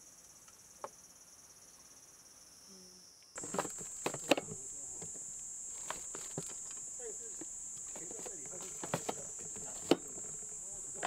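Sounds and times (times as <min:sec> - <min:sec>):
insects chorus: 0:00.0 - 0:11.0
clicks and knocks of handling: 0:03.4 - 0:11.0.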